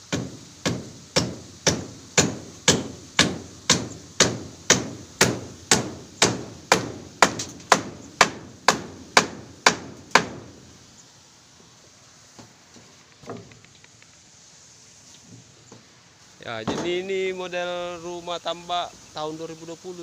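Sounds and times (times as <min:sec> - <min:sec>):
hammer driving nails into wood: 0:00.1 - 0:10.5.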